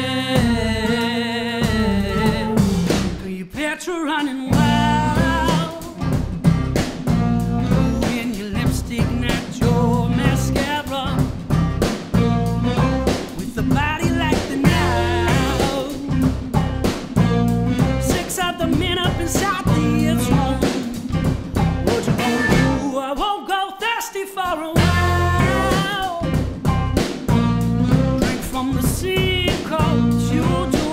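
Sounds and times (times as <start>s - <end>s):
live rock band playing: 0.0s - 3.3s, 4.5s - 22.9s, 24.7s - 30.9s.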